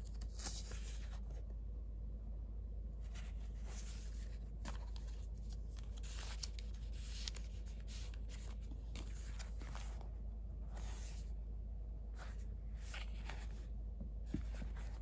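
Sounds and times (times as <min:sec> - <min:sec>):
paper rustling: 0:00.0 - 0:01.4, 0:03.0 - 0:10.1, 0:12.2 - 0:13.6, 0:14.3 - 0:15.0
steady low hum: 0:00.0 - 0:15.0.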